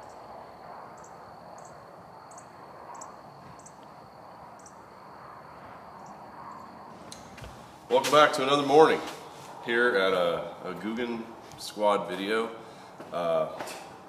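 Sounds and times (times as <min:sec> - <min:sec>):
high-pitched insect trill: 0:00.0 - 0:06.9.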